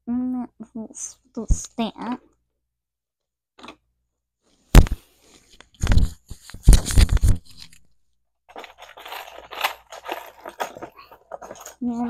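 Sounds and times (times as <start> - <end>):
plastic bricks clattering on table: 8.5 - 11.8
small pieces rattling in cardboard box: 8.5 - 12.0.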